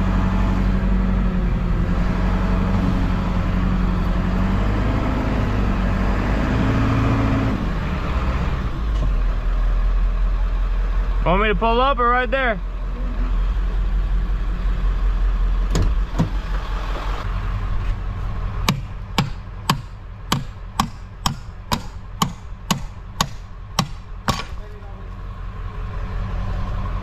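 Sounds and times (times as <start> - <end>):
diesel engine idling: 0.0 - 27.0
sharp knocks: 18.6 - 24.6.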